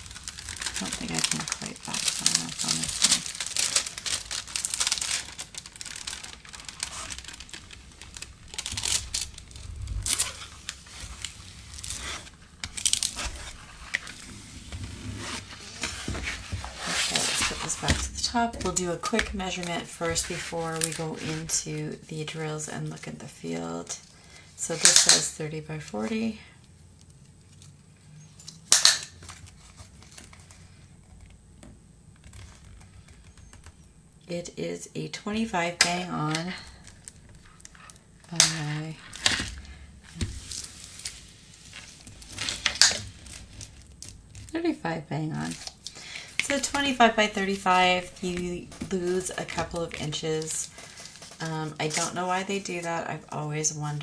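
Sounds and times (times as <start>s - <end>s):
plastic sheet crackle: 0.0s - 22.0s, 35.4s - 53.0s
plastic film crinkling: 0.0s - 23.1s, 25.8s - 31.4s, 32.2s - 34.0s, 35.3s - 53.3s.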